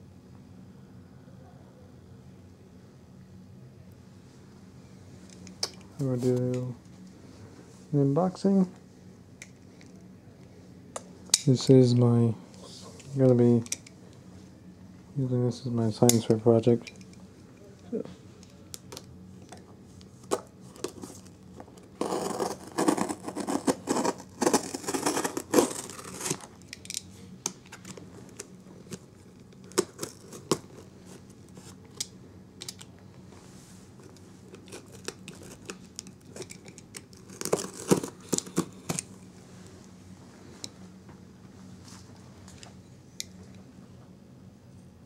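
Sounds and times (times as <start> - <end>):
utility knife slitting packing tape: 22.0 - 26.5, 34.6 - 39.1.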